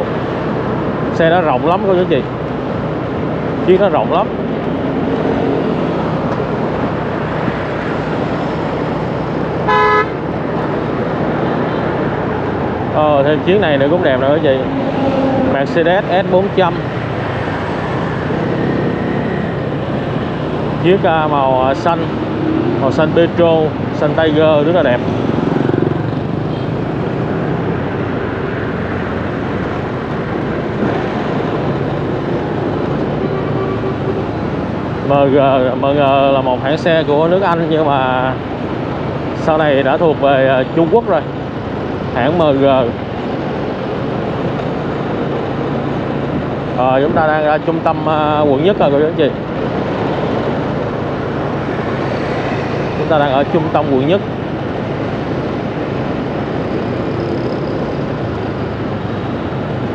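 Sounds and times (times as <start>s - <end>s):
city street traffic: 0.0s - 59.9s
motorbike and car engines: 0.0s - 59.9s
vehicle horn honk: 9.7s - 10.2s, 33.2s - 34.3s.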